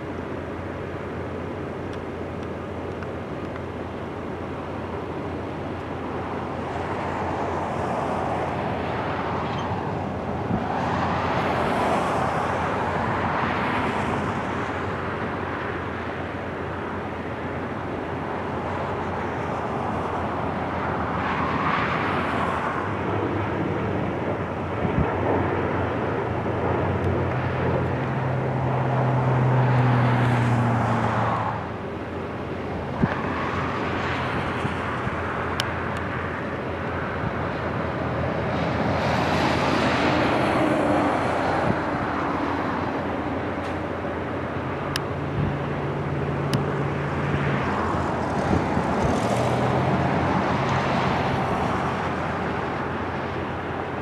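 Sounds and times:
propeller aircraft flying past: 5.4 - 54.0.

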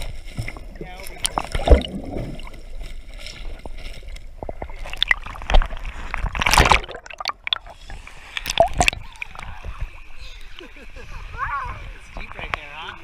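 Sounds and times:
water splashing: 0.0 - 10.2
water sloshing and gurgling: 0.0 - 12.6
muffled underwater bubbling: 0.6 - 2.8, 4.3 - 10.2.

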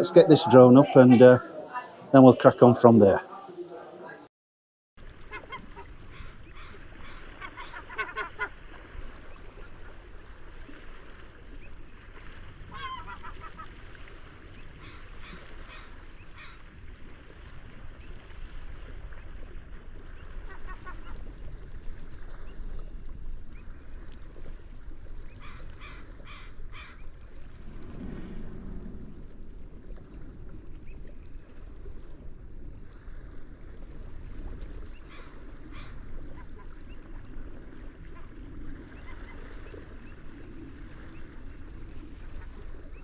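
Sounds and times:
gulls calling: 0.0 - 4.3, 5.0 - 21.4, 25.3 - 27.5, 34.1 - 43.0.

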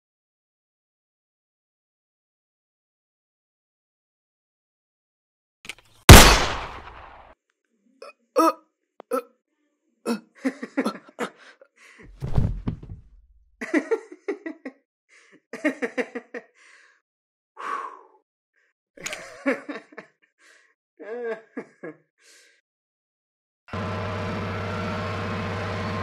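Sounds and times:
man laughing: 10.1 - 11.6, 13.6 - 16.5, 19.1 - 20.2, 21.0 - 22.1
heavy thud: 12.1 - 13.2.

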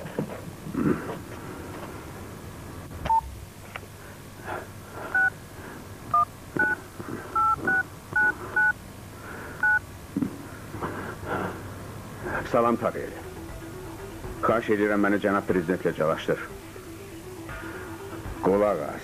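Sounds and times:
telephone keypad beeps: 6.1 - 6.8, 7.4 - 8.8.

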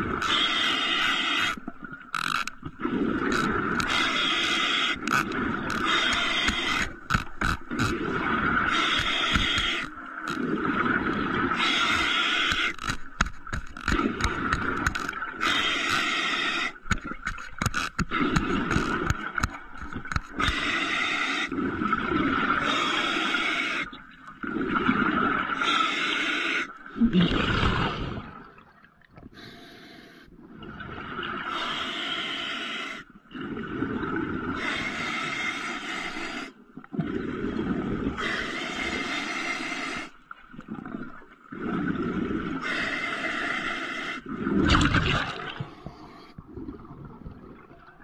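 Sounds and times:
exhaled bubbles rumbling: 0.0 - 0.4, 1.6 - 12.1, 21.5 - 23.1, 23.8 - 25.6, 26.8 - 29.4, 30.3 - 31.5, 33.3 - 34.6, 36.8 - 38.3, 44.2 - 48.0
sharp clicks and knocks: 5.0 - 8.0, 12.5 - 15.2, 16.8 - 20.6
hissing inhalations: 11.6 - 12.8, 20.4 - 21.6, 22.6 - 23.9, 29.3 - 30.3, 31.5 - 33.1, 34.6 - 36.6, 38.2 - 40.2.

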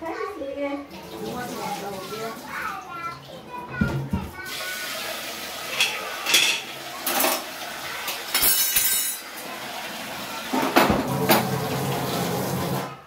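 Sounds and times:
tap water running: 0.8 - 13.0
metal bowls clinking in a sink: 5.6 - 9.4.

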